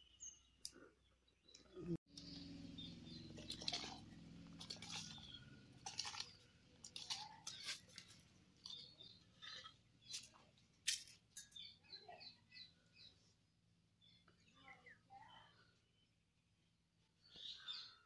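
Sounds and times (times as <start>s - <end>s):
birds chirping: 0.0s - 18.0s.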